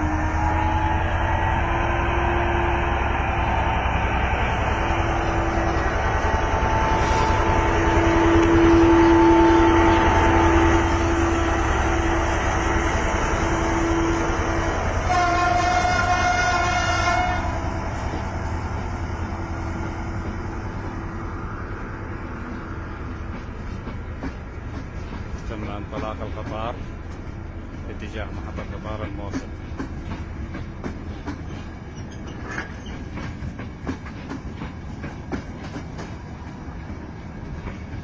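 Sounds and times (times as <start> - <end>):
train horn: 0.0 - 18.2
passenger train passing: 0.0 - 38.0.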